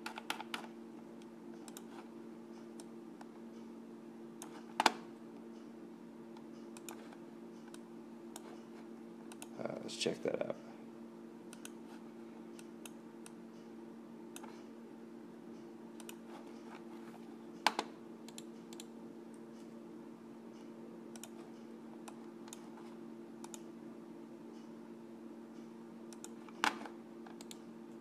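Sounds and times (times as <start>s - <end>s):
computer mouse and keyboard clicks: 0.0s - 0.7s, 1.6s - 2.9s, 6.4s - 7.8s, 21.2s - 22.8s
steady low hum: 0.0s - 28.0s.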